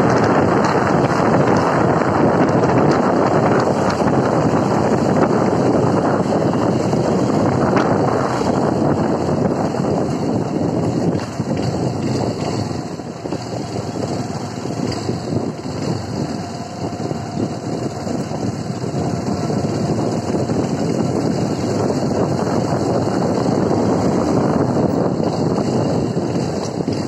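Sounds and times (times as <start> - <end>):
motorcycle engine running: 0.0 - 27.0
wind buffeting microphone: 0.0 - 27.0.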